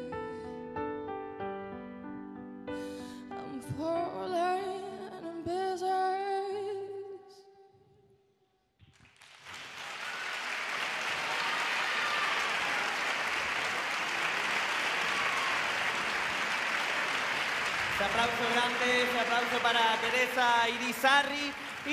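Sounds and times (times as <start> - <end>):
audience applause: 9.0 - 21.9.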